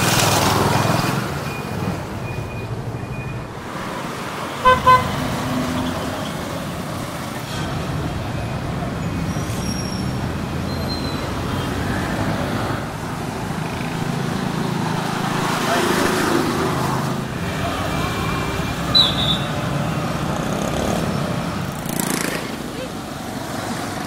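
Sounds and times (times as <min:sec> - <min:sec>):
road traffic engines: 0:00.0 - 0:24.0
vehicle horn toots: 0:04.6 - 0:05.2.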